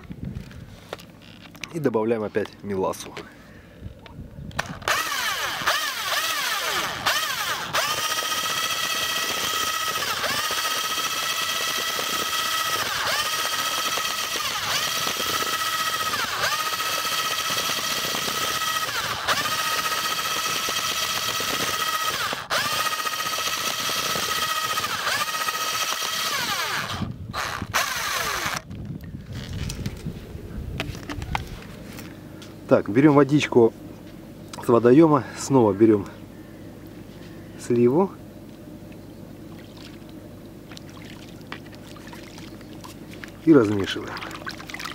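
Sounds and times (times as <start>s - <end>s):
electric drill motor whining: 4.6s - 28.8s.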